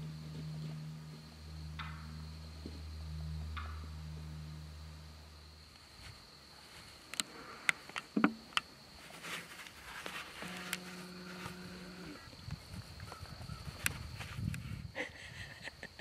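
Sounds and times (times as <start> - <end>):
flying insect buzzing: 0.0 - 8.4, 10.1 - 12.4.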